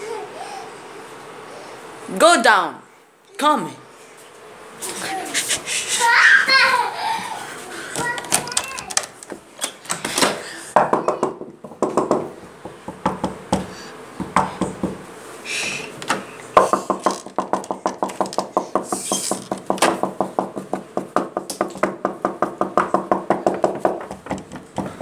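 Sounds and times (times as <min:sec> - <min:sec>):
handling noises: 0:07.9 - 0:10.4, 0:15.7 - 0:21.0
rapid even knocking: 0:10.8 - 0:15.0, 0:16.6 - 0:25.0.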